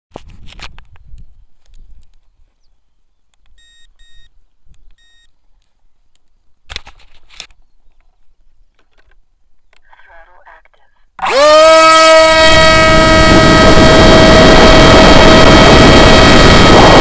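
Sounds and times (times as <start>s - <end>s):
short electronic beeps: 3.6s - 4.3s, 5.0s - 5.3s
hand handling camera: 6.7s - 8.2s.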